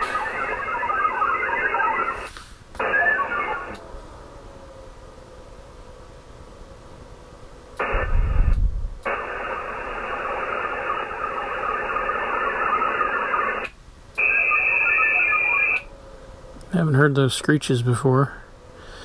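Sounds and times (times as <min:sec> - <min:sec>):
modem data bursts screeching: 0:00.0 - 0:03.8, 0:07.8 - 0:08.5, 0:09.1 - 0:15.9
low rumble: 0:07.8 - 0:10.6.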